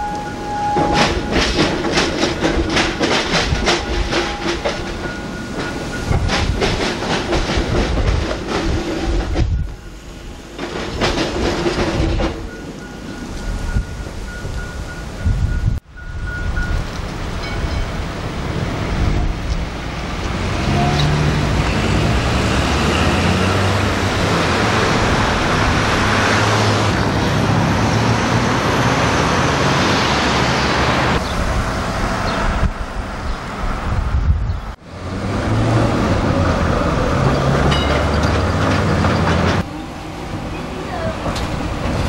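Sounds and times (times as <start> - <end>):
road traffic: 0.0 - 42.0
tram passing: 0.0 - 42.0.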